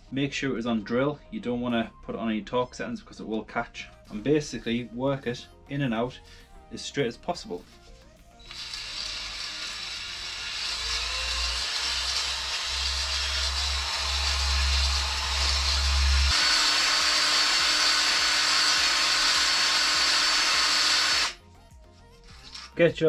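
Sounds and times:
honing stones grinding cylinder: 8.4s - 21.4s
high whine: 8.5s - 21.4s.

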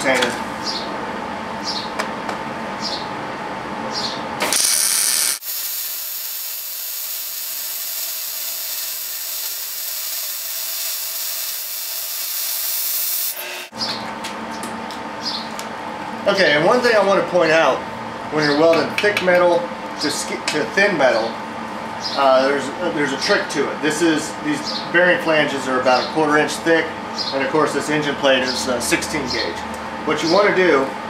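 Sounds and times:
welding arc sizzling: 4.4s - 13.7s.

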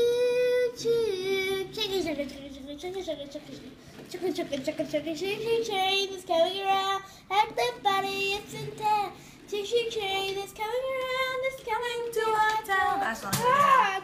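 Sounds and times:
child singing wordless tune: 0.0s - 13.0s.

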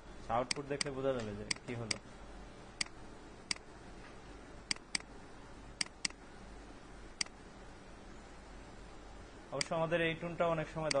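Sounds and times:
low steady hum: 0.0s - 11.0s
computer mouse clicking: 4.7s - 5.1s, 5.8s - 6.2s, 7.2s - 7.4s.

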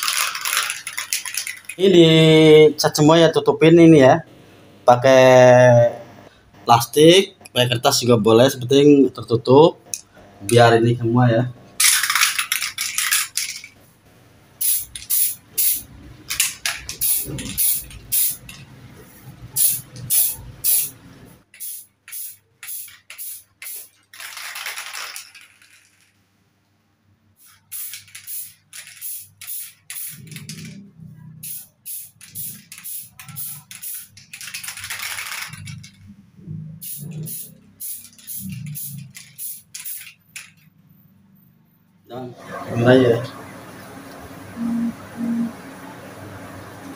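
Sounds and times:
spray can hissing: 14.6s - 15.9s, 16.9s - 18.6s, 19.5s - 24.3s, 27.4s - 30.6s, 31.4s - 35.5s, 36.8s - 40.2s.

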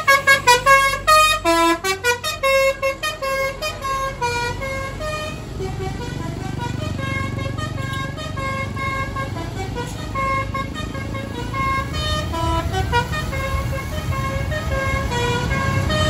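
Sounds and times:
bus horn playing a melody: 0.0s - 16.0s
low rumble of engines and traffic: 0.0s - 16.0s.

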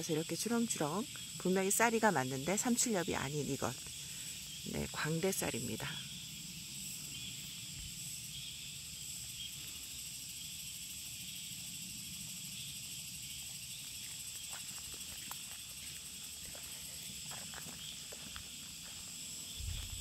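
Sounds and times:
insects singing: 0.0s - 20.0s
footsteps on dirt path: 13.5s - 20.0s.

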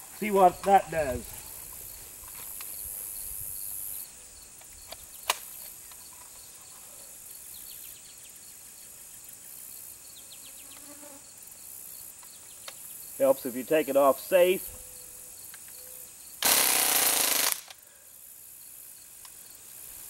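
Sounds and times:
insects buzzing drone: 0.0s - 20.0s
faint chirps: 14.5s - 16.3s.

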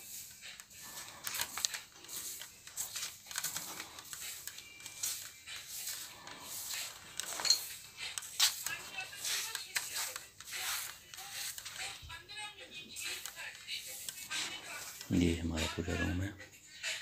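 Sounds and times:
sharp broom scrape: 0.0s - 12.0s
broom sweeping a marble floor: 0.0s - 12.1s, 13.0s - 16.0s.

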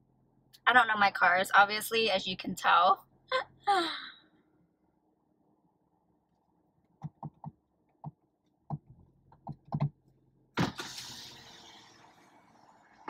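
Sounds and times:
light clicks and taps in car: 6.9s - 10.1s.

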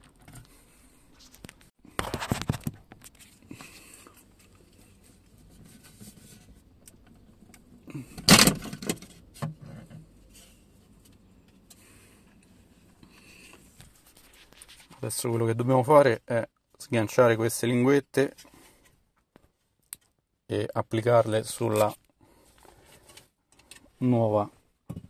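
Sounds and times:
plastic clatter: 1.3s - 3.2s.

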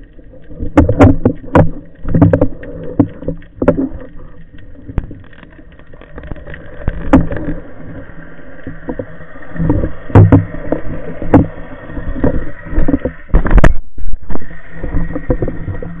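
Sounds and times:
underwater water rushing: 0.0s - 16.0s
dull underwater knocks: 0.6s - 4.1s, 6.9s - 7.6s, 8.7s - 16.0s.

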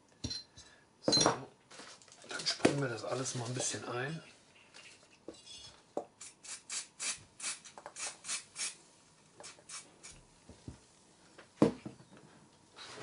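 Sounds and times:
aerosol spray hissing bursts: 6.2s - 8.8s, 9.4s - 10.2s.

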